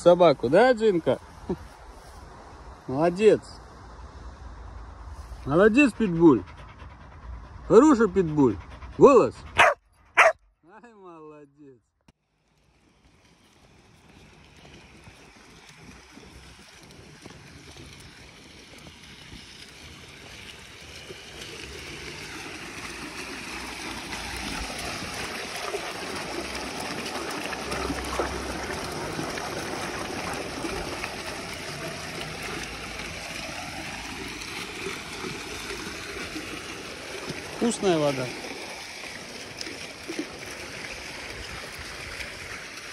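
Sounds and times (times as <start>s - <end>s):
water running and splashing: 12.4s - 42.9s.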